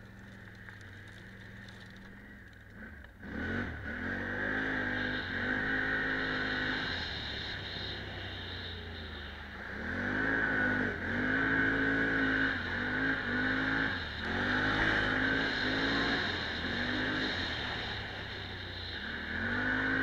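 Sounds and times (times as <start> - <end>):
vehicle engine revving: 0.0 - 20.0
steady rushing noise: 4.7 - 20.0.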